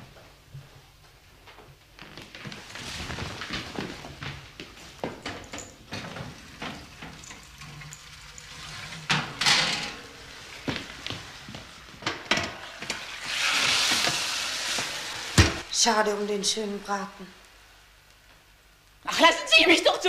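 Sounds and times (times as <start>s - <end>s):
crockery clinking: 5.1s - 10.2s
hissing noise: 10.1s - 15.7s.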